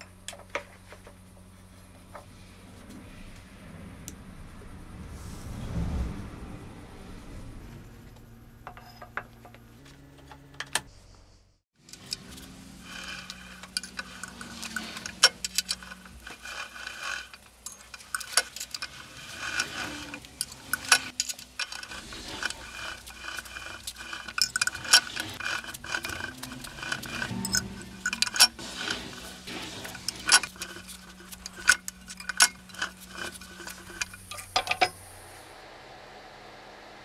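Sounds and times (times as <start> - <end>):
rolling mill gears clicking and rattling: 7.0 - 10.9, 11.8 - 35.4.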